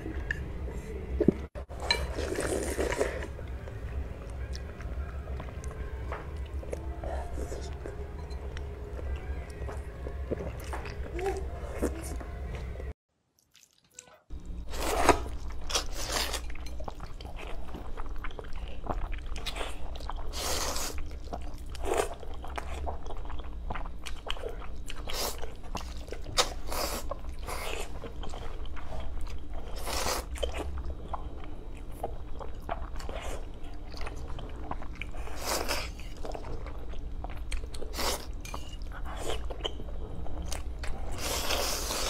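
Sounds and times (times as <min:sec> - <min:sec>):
low steady hum: 0:00.0 - 0:13.0, 0:14.3 - 0:42.0
slurping and chewing noodles: 0:01.8 - 0:03.4, 0:14.7 - 0:42.0.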